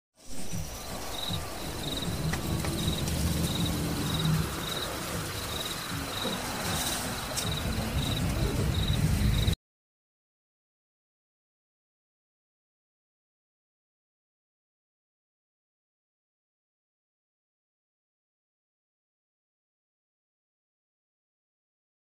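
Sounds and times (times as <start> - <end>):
even hiss: 0.2 - 9.6
low rumble: 0.2 - 9.6
crickets chirping: 0.3 - 9.6.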